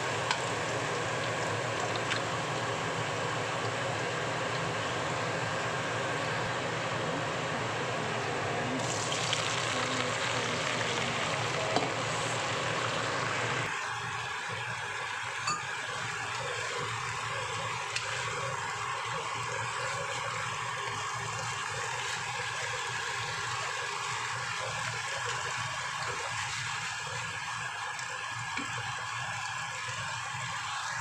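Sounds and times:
spinach sizzling in hot oil: 8.8s - 14.4s.

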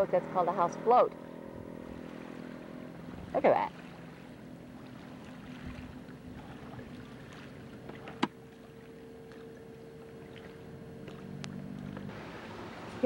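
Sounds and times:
faint engine hum: 0.0s - 13.0s
outdoor background noise: 0.0s - 13.0s.

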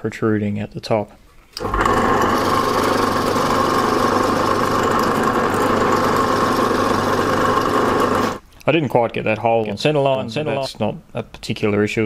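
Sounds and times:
drill press boring into wood: 1.6s - 8.4s.

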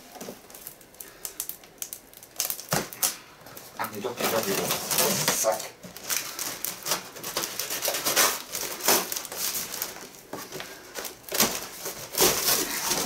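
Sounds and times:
packing tape being slit: 0.1s - 3.2s, 4.0s - 13.0s
cardboard flaps scraping and rustling: 3.8s - 13.0s
cardboard ripping: 3.8s - 13.0s.

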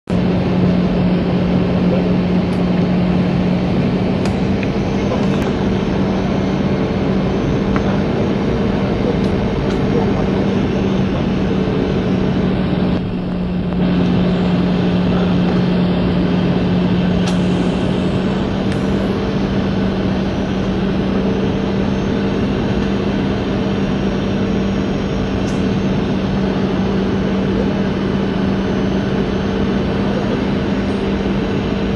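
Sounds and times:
jet engines roaring: 0.1s - 31.9s
steady low hum: 0.1s - 31.9s
rushing air: 1.1s - 23.1s.

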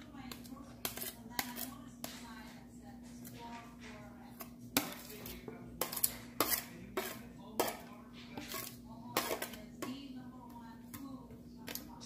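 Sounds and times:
vegetables scraped into bowl: 0.4s - 9.6s.

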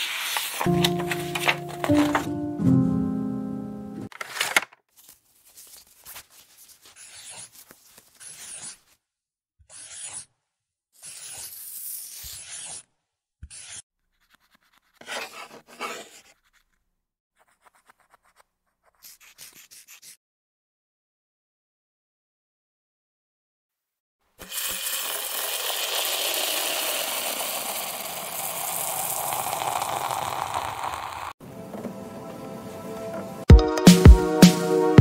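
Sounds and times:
pen scribbling on paper: 6.4s - 8.8s, 9.7s - 10.2s, 11.0s - 12.8s, 13.5s - 16.8s, 17.4s - 20.2s.

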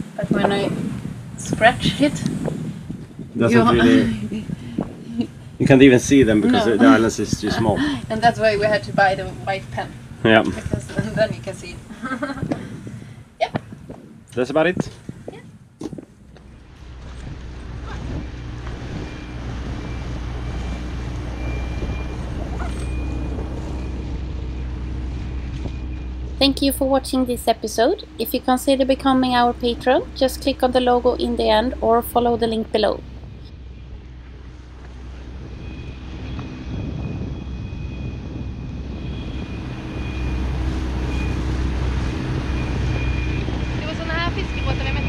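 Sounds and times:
wind on microphone: 0.0s - 45.0s
outboard motor humming: 16.2s - 45.0s.

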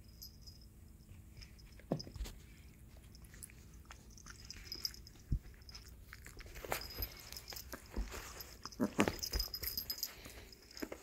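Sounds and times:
soft clicks and rustles: 1.2s - 11.0s.

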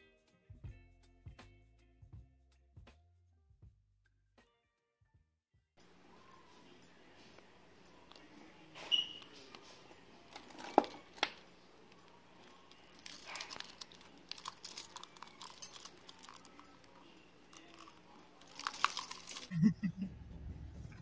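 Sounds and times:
metal keys jangling: 6.2s - 19.5s.

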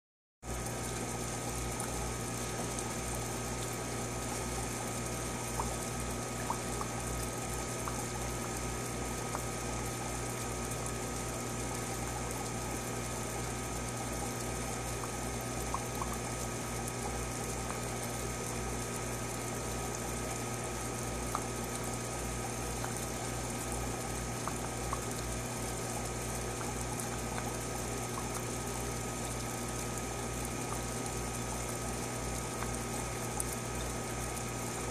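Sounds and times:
low electric hum: 0.4s - 34.9s
water trickling: 0.5s - 34.9s.

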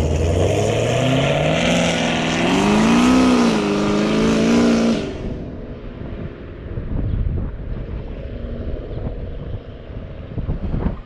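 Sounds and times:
car accelerating hard: 0.0s - 5.5s.

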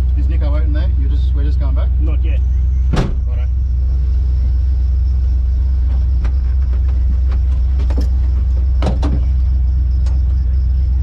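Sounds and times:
truck engine idling: 0.0s - 11.0s
clicks and rattles in cab: 5.8s - 10.4s.

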